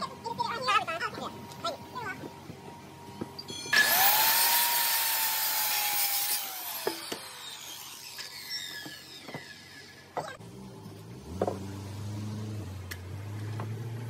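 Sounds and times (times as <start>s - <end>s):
saw blade spinning down: 3.7s - 10.2s
circular saw cutting wood: 3.7s - 10.4s.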